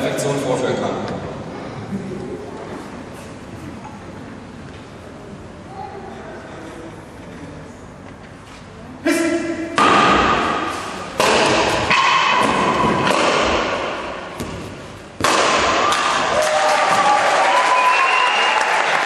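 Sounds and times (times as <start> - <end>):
applause: 16.4 - 19.0.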